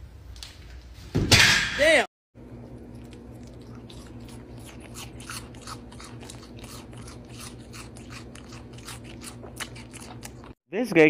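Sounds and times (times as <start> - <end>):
goat chewing crunchy food: 2.6 - 10.6.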